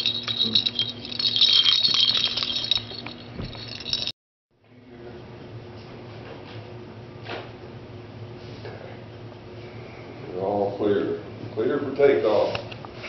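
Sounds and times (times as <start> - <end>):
plastic ball toy and chain rattling: 0.0 - 4.1.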